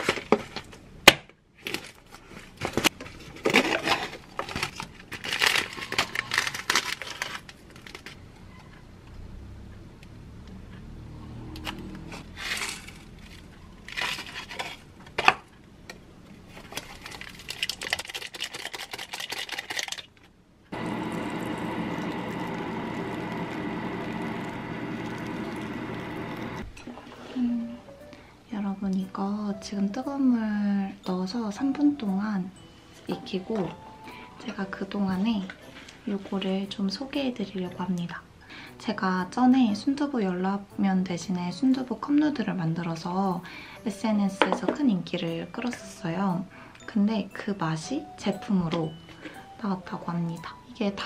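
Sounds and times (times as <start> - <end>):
packaging crinkling and tearing: 1.6 - 8.2, 12.5 - 14.9, 16.5 - 20.2
hot water pouring into cup: 20.8 - 26.8.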